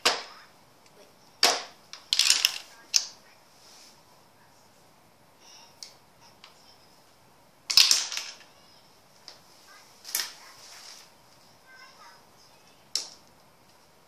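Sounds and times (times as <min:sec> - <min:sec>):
toy pool table clacks and knocks: 0:01.4 - 0:03.1, 0:07.7 - 0:08.5.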